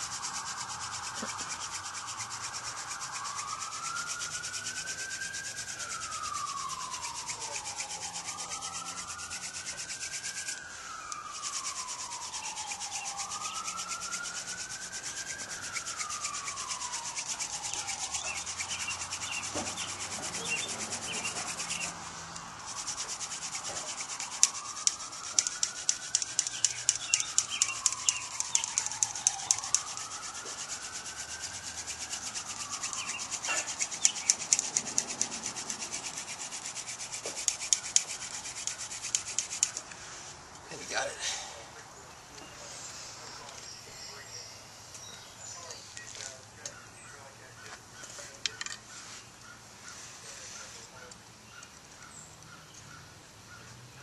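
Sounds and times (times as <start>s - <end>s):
rising and falling wail: 0.0s - 39.9s
wooden spindle grinding in hearth board: 0.0s - 40.1s
sharp clicks: 0.4s - 40.6s.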